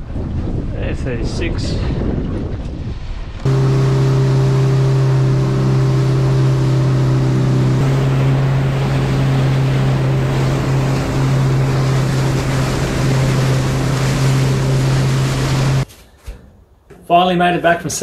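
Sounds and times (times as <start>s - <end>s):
wind on microphone: 0.0s - 15.8s
water rushing along hull: 2.6s - 15.8s
boat engine droning: 3.4s - 15.8s.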